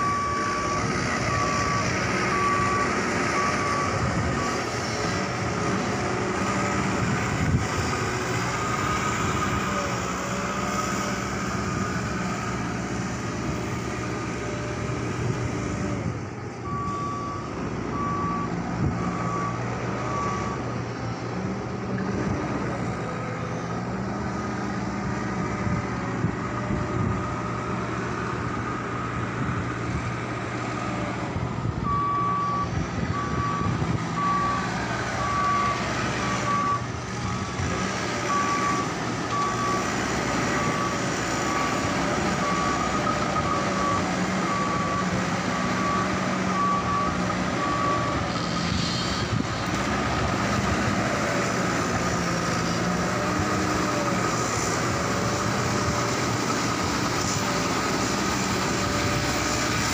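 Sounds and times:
reversing alarm beeping: 0.0 - 5.4, 16.6 - 20.8, 31.8 - 37.6, 38.2 - 48.8
diesel engine running: 0.0 - 59.9.

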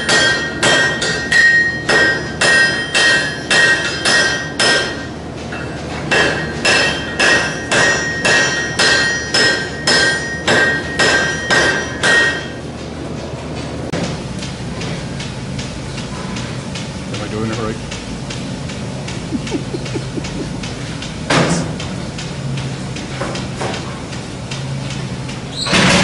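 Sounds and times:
hammer striking steel on anvil: 0.0 - 12.6.

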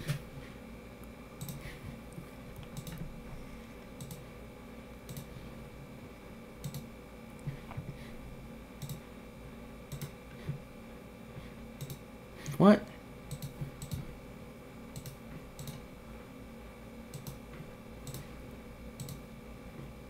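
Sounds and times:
faint steady hum: 0.0 - 20.0
mouse and keyboard clicks: 2.6 - 3.0, 13.3 - 14.0, 15.0 - 15.8.

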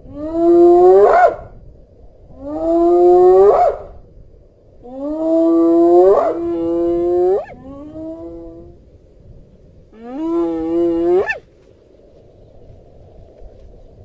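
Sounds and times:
hyena whooping: 10.0 - 11.4.

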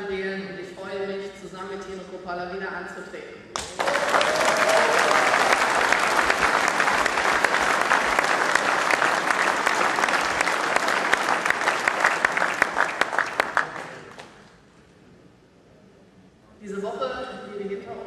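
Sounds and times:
large audience applauding: 3.6 - 14.4.

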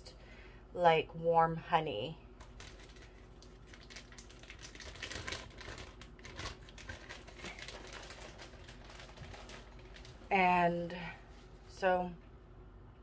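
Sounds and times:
plastic bottle crinkling and clicking: 2.4 - 10.2.

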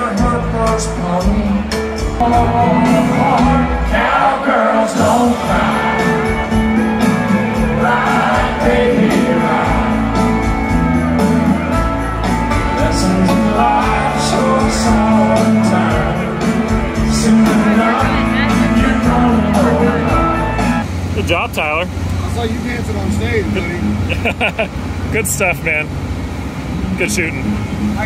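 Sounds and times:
person singing: 0.0 - 10.6, 12.5 - 20.8
live band playing: 0.0 - 24.1.

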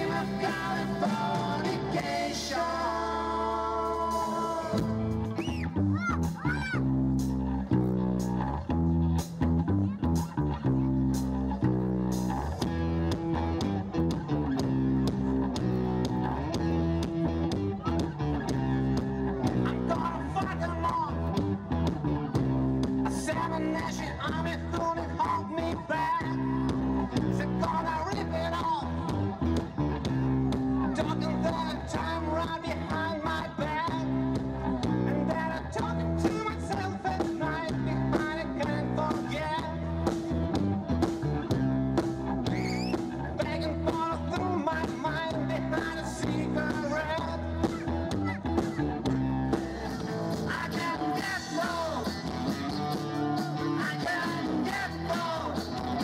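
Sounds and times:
person singing: 0.0 - 6.8, 23.0 - 39.9, 43.4 - 49.2, 49.8 - 56.0
rock band playing live: 0.0 - 56.0.

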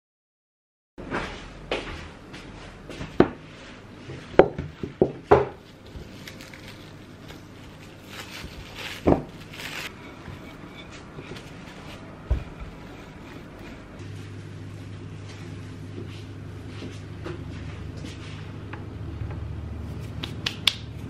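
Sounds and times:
cling film crinkling: 5.7 - 9.9.

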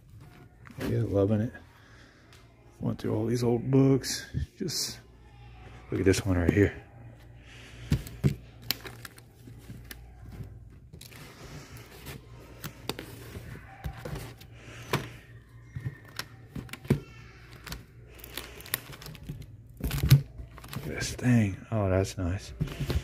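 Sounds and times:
comic book pages flipping: 7.9 - 21.4.

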